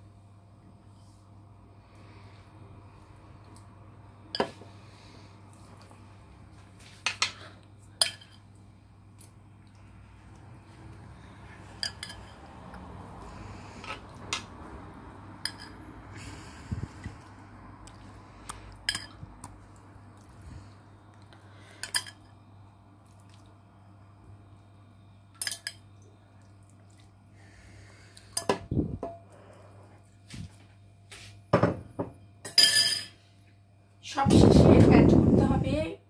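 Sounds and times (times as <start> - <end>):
faint low hum: 0.0 - 36.0
metal utensils clinking on pot: 11.8 - 12.4, 15.4 - 15.8, 32.5 - 33.2.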